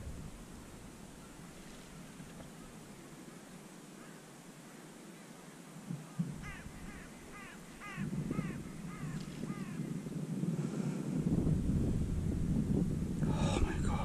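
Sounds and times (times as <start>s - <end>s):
low rustling rumble: 0.0s - 2.4s
crow cawing: 6.4s - 9.8s.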